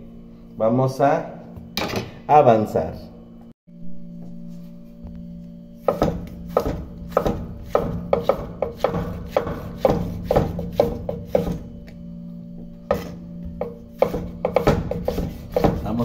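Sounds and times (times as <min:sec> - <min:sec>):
steady low hum: 0:00.0 - 0:16.0
knife slicing tomato on board: 0:05.9 - 0:11.6, 0:14.0 - 0:16.0.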